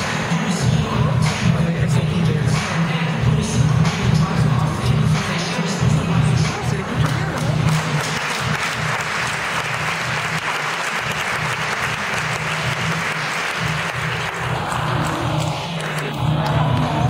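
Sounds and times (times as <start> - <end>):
background music bass: 0.0 - 17.0
audience applauding: 7.0 - 17.0.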